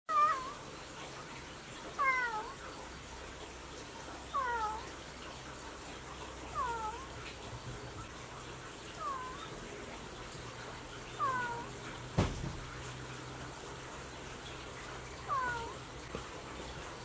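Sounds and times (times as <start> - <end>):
cat meowing: 0.1 - 0.6, 2.0 - 2.6, 4.3 - 4.9, 6.5 - 7.1, 8.9 - 9.6, 11.1 - 11.8, 15.2 - 15.8.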